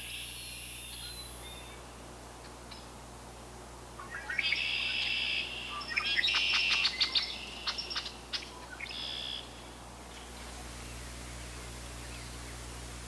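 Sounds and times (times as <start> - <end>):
blackbird singing trills: 4.0 - 9.5.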